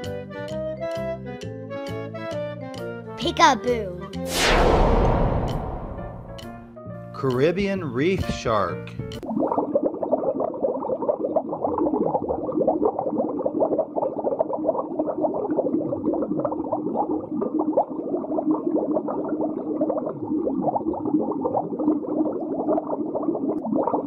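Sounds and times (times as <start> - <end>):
slow falling swoops: 4.2 - 6.7
underwater bubbling and gurgling: 9.0 - 24.0.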